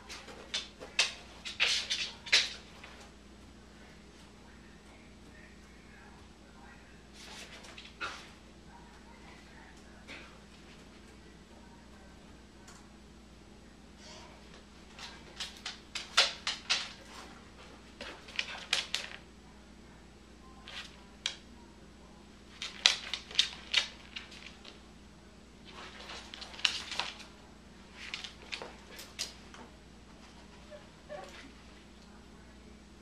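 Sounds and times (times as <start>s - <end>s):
dog claws clicking on wooden floor: 15.0s - 17.3s, 18.0s - 19.2s, 22.5s - 24.8s, 25.8s - 27.3s, 28.0s - 29.4s.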